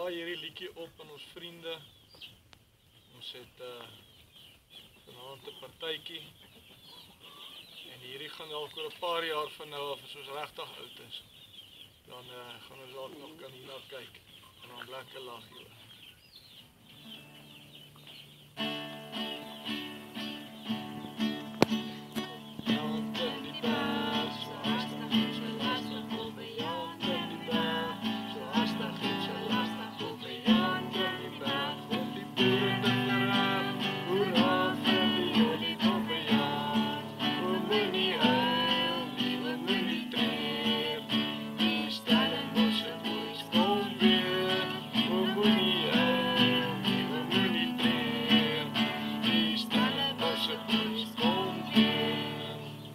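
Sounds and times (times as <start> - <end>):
classical guitar strumming: 17.1 - 52.9
person singing: 21.9 - 52.9.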